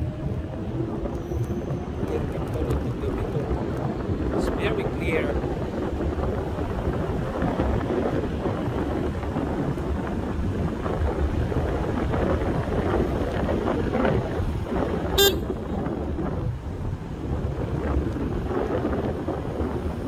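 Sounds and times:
wind and road rush: 0.0 - 20.0
high-pitched horn beep: 15.2 - 15.6.

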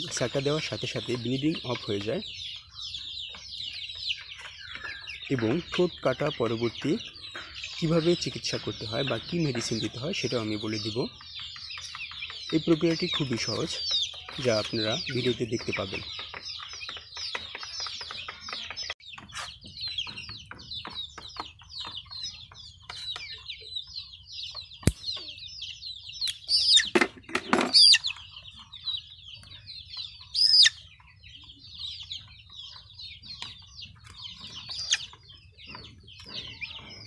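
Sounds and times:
chicks peeping: 0.0 - 37.0
sharp click: 24.8 - 25.2.

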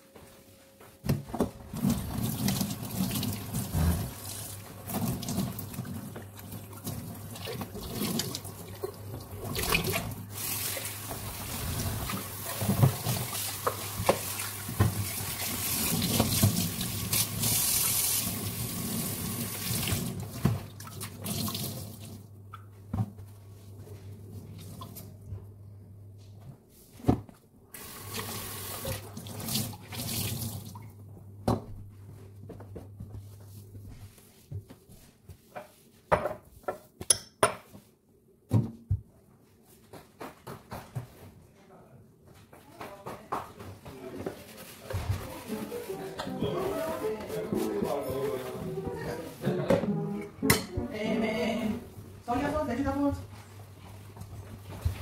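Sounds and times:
dish being rinsed: 1.7 - 22.2
dishes knocking and clinking: 35.5 - 37.8.

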